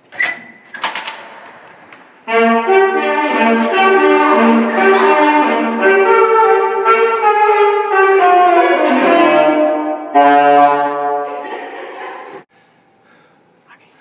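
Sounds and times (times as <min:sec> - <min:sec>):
saxophone playing: 0:02.2 - 0:11.4.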